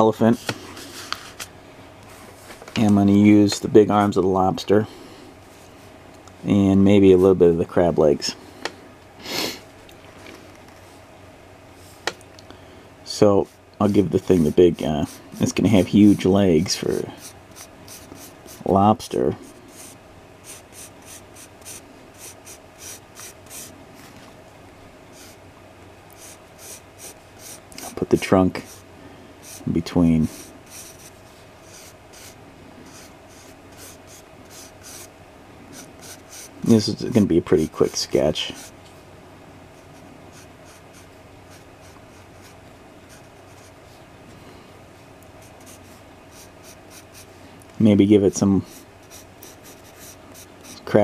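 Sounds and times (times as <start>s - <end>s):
faint steady hum: 0.0s - 51.0s
pencil sketching on paper: 17.2s - 18.6s, 19.7s - 23.7s, 26.2s - 28.0s, 29.4s - 35.1s, 35.7s - 36.5s, 39.8s - 43.7s, 45.4s - 47.3s, 48.6s - 50.9s.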